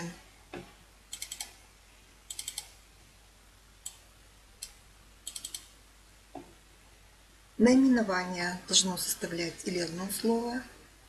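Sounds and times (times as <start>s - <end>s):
computer mouse clicking: 1.1s - 1.6s, 2.3s - 2.8s, 3.8s - 4.0s, 4.6s - 5.7s.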